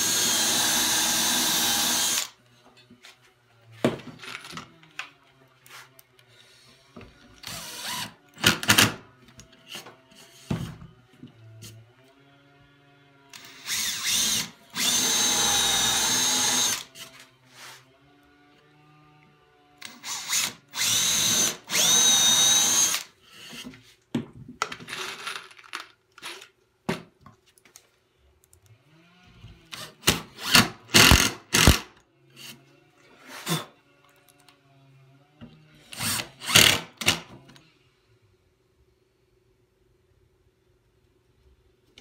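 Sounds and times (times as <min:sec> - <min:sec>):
cordless drill boring into wood: 0:00.0 - 0:02.4, 0:07.4 - 0:08.9, 0:13.3 - 0:17.0, 0:19.8 - 0:23.6, 0:29.7 - 0:32.6, 0:35.8 - 0:37.2.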